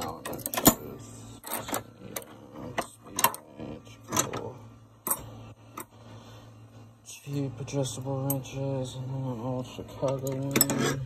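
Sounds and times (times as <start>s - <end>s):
metal wrenches clinking: 10.1s - 11.0s.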